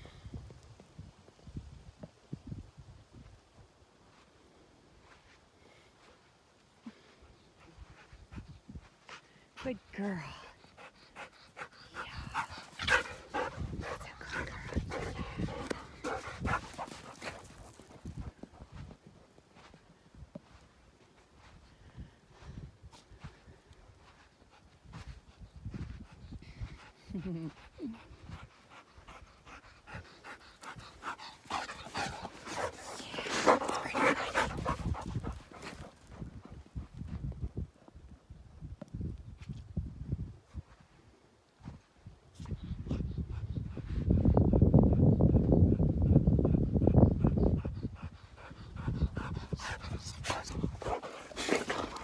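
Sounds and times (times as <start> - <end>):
dog panting: 7.0 - 19.8, 23.2 - 37.2, 42.7 - 52.0.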